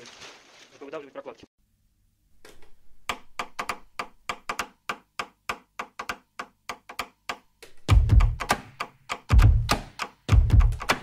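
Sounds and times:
quick percussive clicks: 6.0s - 11.0s
heavy bass beat: 7.9s - 11.0s.

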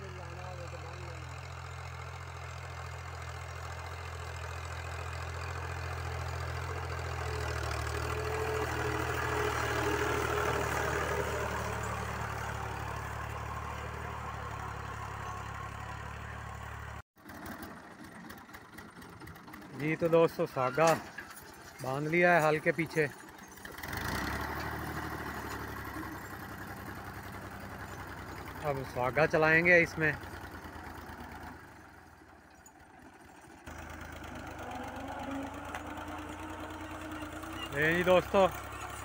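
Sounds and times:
tractor diesel engine under load: 0.0s - 39.0s.

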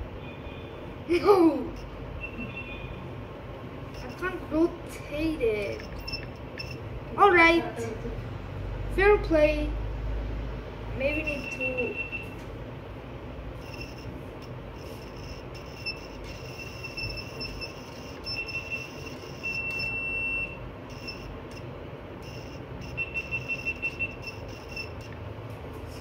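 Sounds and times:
low background hum: 0.0s - 26.0s
electronic buzzer beeping: 1.7s - 3.0s, 4.0s - 4.3s, 5.6s - 6.9s, 11.0s - 12.4s, 13.6s - 25.2s.

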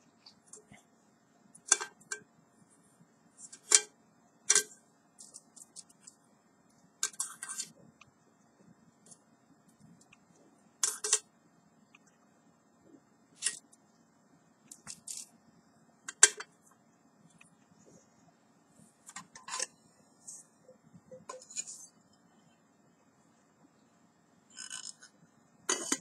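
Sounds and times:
metal pot handles clinking: 1.7s - 2.2s, 25.7s - 26.0s.

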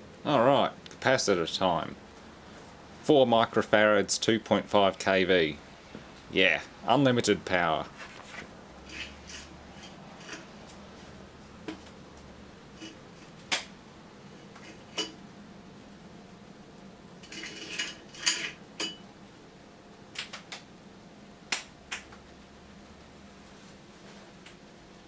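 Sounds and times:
sharp electrical snaps: 12.8s - 13.8s, 20.1s - 20.7s, 21.5s - 22.2s.

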